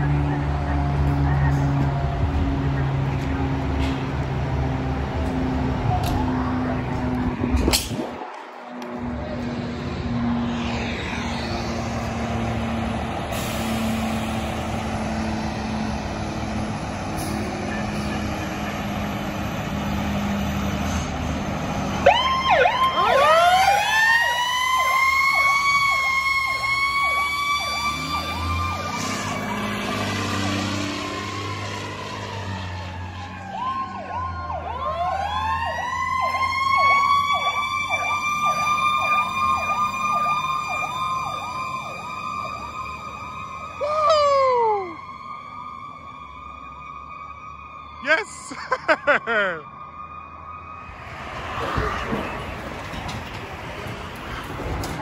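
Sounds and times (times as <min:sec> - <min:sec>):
siren whooping and wailing: 0:05.4 - 0:13.4, 0:21.9 - 0:52.9.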